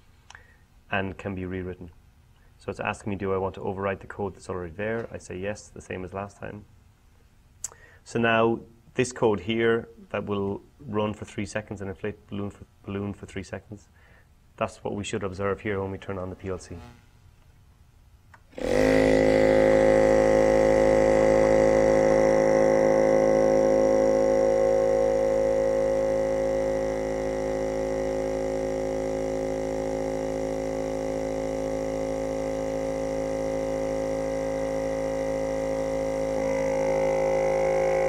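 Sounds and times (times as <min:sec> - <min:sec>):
electric air pump humming: 0:16.6 - 0:17.3, 0:18.5 - 0:38.0.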